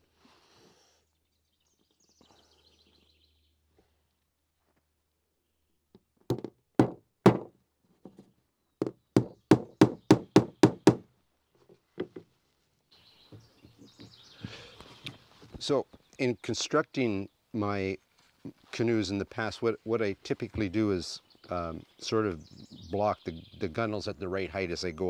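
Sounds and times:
hatchet striking wood: 0:06.3 - 0:07.5, 0:08.8 - 0:11.0.

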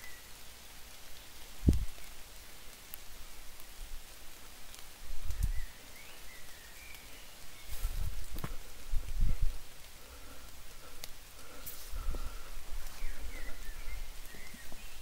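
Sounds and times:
leaf rustling: 0:00.0 - 0:15.0
light steady hiss: 0:00.0 - 0:15.0
bird chirping: 0:05.3 - 0:08.1, 0:11.4 - 0:15.0.

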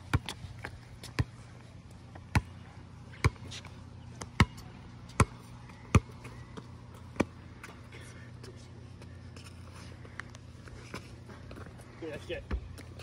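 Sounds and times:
basketball bouncing on concrete: 0:00.0 - 0:01.4, 0:02.1 - 0:02.6, 0:03.2 - 0:07.8.

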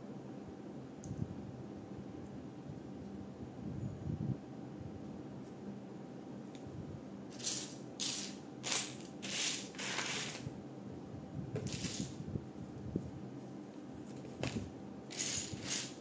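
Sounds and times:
plastic pieces rattling: 0:07.3 - 0:10.4, 0:11.6 - 0:12.2, 0:14.4 - 0:16.0.

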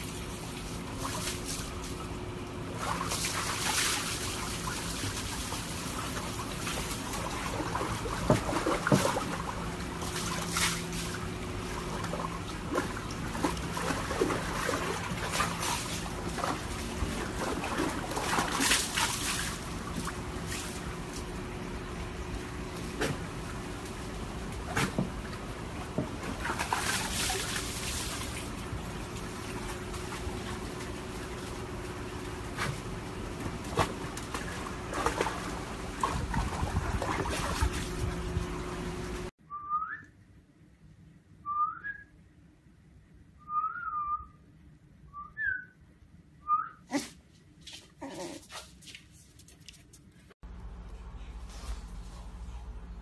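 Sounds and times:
water splashing: 0:00.0 - 0:21.3, 0:22.7 - 0:38.2.

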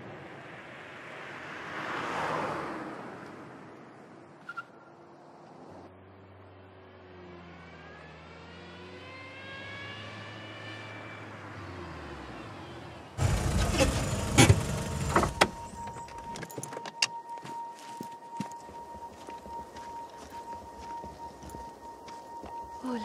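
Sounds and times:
car engine hum: 0:08.6 - 0:16.8.

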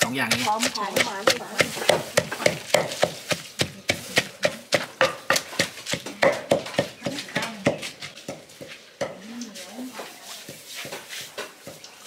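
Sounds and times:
pestle pounding in mortar: 0:00.0 - 0:09.2.

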